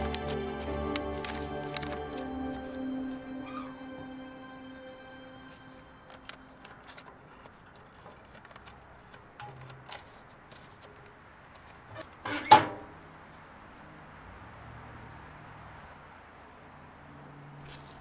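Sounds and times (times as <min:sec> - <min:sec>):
metal mailbox banging shut: 0:12.2 - 0:12.9.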